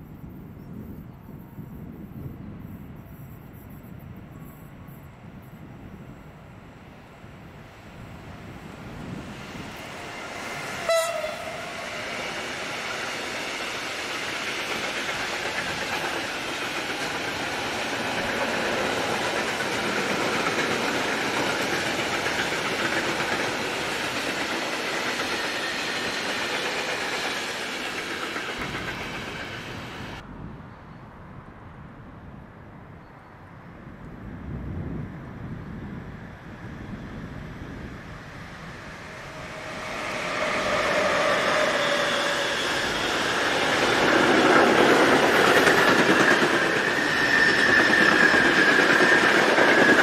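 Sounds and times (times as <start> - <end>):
train wheels rushing on rails: 6.8 - 30.2, 35.8 - 50.0
train horn toot: 10.6 - 12.2.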